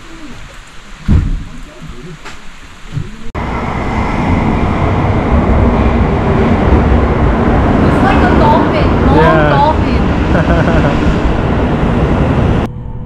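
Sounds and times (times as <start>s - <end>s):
train noise: 0.0s - 13.0s.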